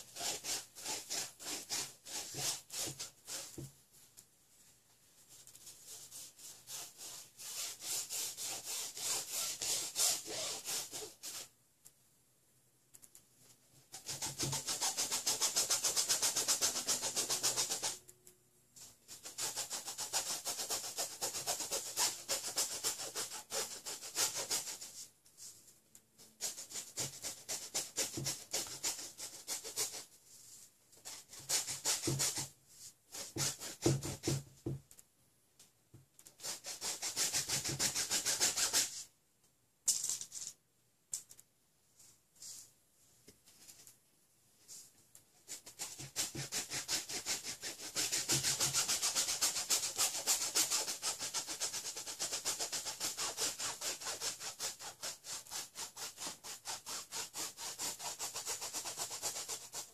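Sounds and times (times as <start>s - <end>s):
paintbrush scrubbing on canvas: 0.0s - 3.7s, 13.9s - 18.0s, 18.8s - 25.6s, 36.4s - 39.1s, 44.6s - 59.9s.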